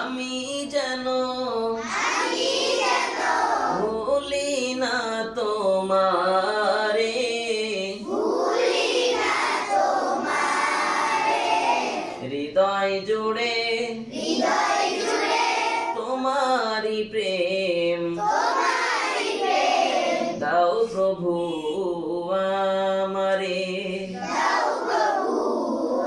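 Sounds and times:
man singing into a microphone: 0.0 - 1.9, 3.7 - 8.1, 12.2 - 14.1, 16.0 - 18.2, 20.3 - 24.2.

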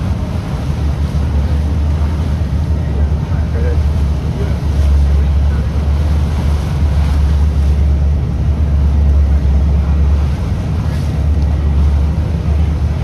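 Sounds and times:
boat engine drone: 0.0 - 13.0.

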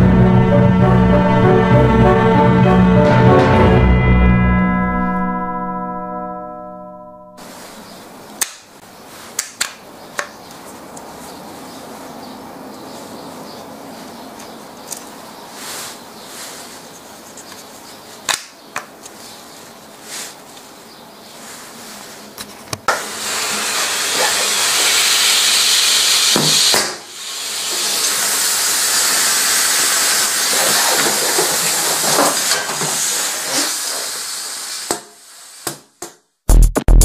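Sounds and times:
compressed air hiss: 23.0 - 30.9, 33.0 - 35.9.

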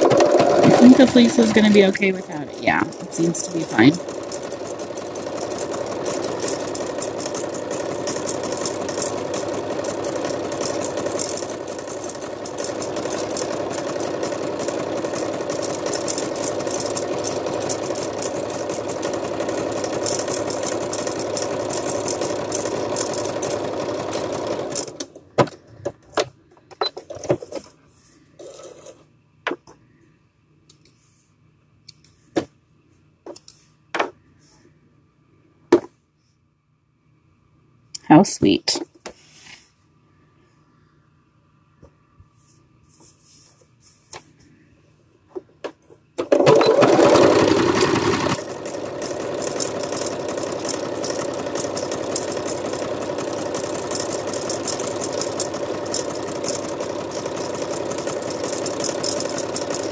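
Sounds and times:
sewing machine running: 0.0 - 25.2, 46.2 - 59.9.

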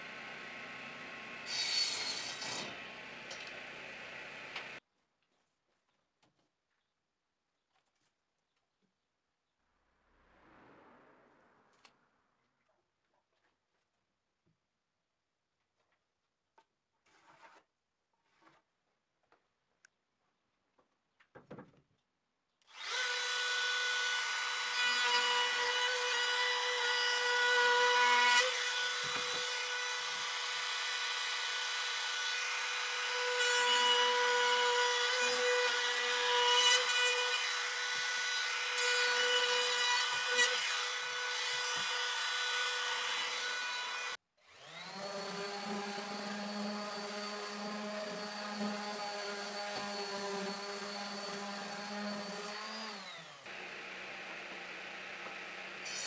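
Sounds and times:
power tool whining: 43.2 - 55.8.

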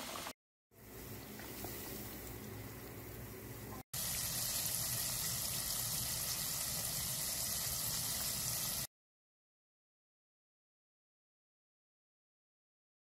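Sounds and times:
hot oil bubbling and sizzling: 0.0 - 8.9.

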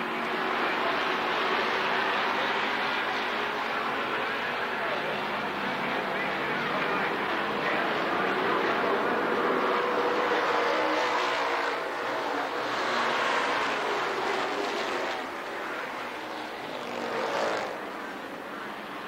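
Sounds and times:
stock car engines racing: 0.0 - 19.0.

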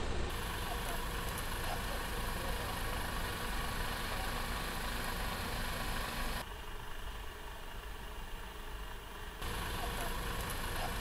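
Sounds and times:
heavy truck engine rumble: 0.0 - 11.0.

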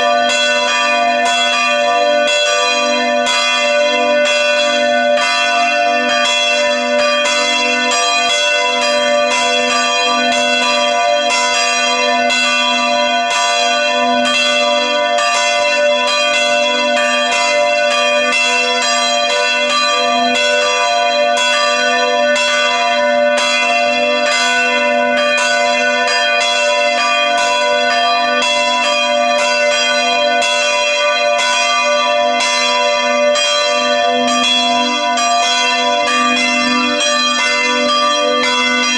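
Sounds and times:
church bells pealing: 0.0 - 38.9.

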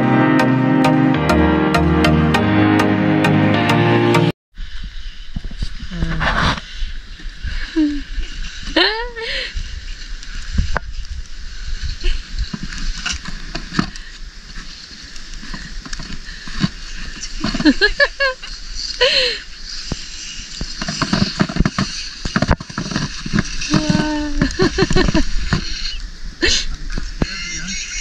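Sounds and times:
plastic sled scraping on snow: 4.6 - 8.8, 9.7 - 26.0
snow crunching: 9.6 - 28.0.

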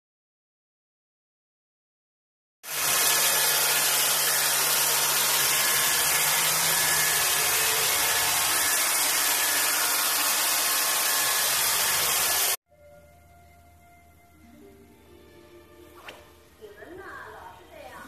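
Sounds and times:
robot vacuum cleaner whirring: 2.7 - 12.6.

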